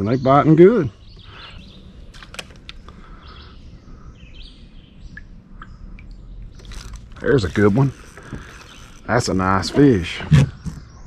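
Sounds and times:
faint bird calls: 0.3 - 11.0
steady low rumble: 0.9 - 8.2.

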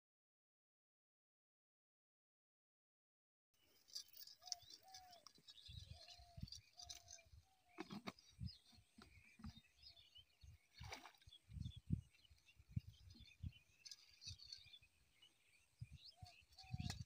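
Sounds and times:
small birds chirping: 3.6 - 17.0.

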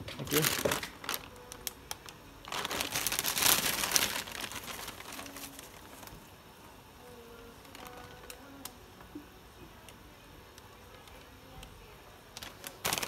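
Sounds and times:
plastic bag crinkling: 0.0 - 6.3, 7.6 - 8.7, 12.3 - 13.0.

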